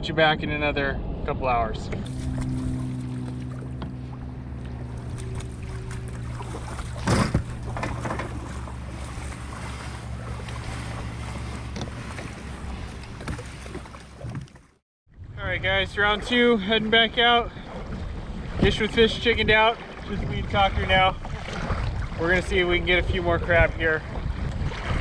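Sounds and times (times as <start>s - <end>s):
steady low hum: 0.0s - 14.0s
kayak moving over water: 1.9s - 25.0s
wind on microphone: 15.1s - 25.0s.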